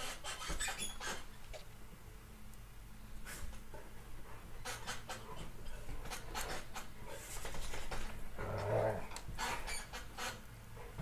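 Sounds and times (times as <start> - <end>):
dogs scuffling on bedding: 5.2 - 8.2
dog growling: 8.4 - 9.2.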